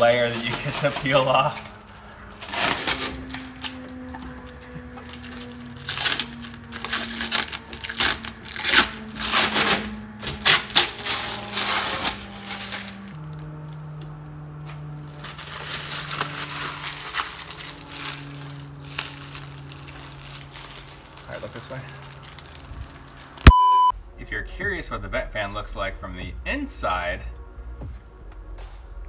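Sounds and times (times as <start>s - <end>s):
plastic film crinkling as peeled: 0.0s - 23.5s
soft background music: 23.9s - 29.0s.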